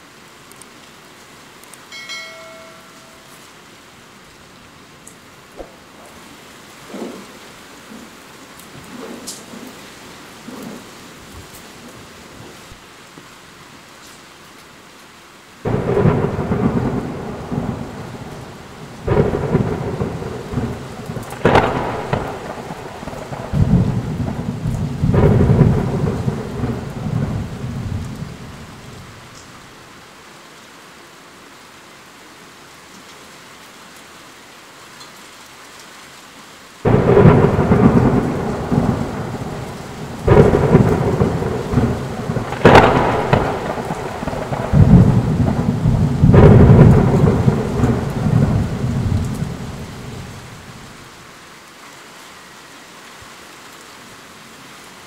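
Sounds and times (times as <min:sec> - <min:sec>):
steady rain: 0:00.0 - 0:55.0
thunderclaps and rumbles: 0:05.6 - 0:12.6, 0:15.6 - 0:29.5, 0:36.8 - 0:51.0.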